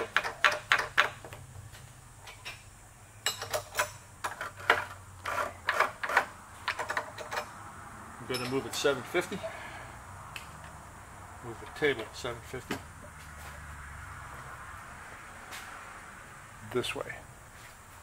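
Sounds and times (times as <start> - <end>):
metal tools clicking and clinking: 3.2 - 7.5, 8.3 - 8.8.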